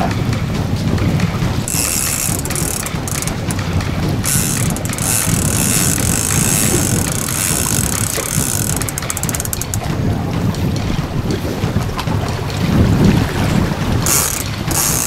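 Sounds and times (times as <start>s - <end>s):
wind rumble on microphone: 0.0s - 15.0s
fishing reel drag buzzing: 1.7s - 9.9s, 14.0s - 15.0s.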